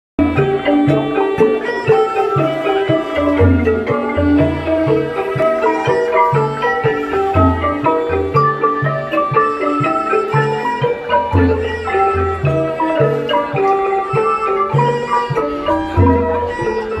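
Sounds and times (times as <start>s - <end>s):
mallet percussion melody: 0.2s - 17.0s.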